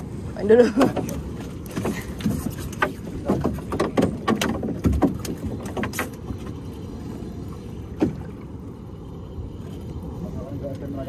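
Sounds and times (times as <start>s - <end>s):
water splashing: 0.0s - 11.0s
knocks on wooden boat: 2.8s - 6.0s.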